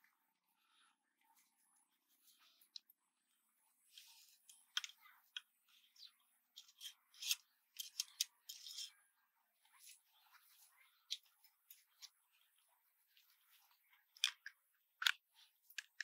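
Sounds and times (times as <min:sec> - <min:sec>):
small clicks and scrapes of metal parts: 0:03.9 - 0:13.3, 0:14.1 - 0:16.0.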